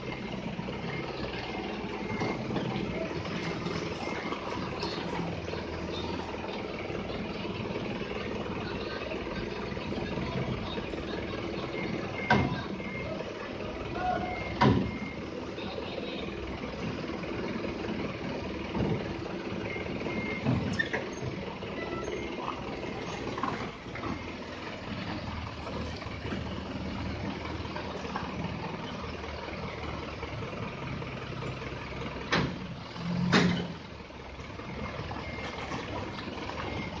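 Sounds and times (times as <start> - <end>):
forklift engine running: 0.0 - 37.0
reversing alarm beeps: 0.2 - 5.0, 9.8 - 13.2, 13.8 - 15.3, 19.6 - 23.3, 35.1 - 37.0.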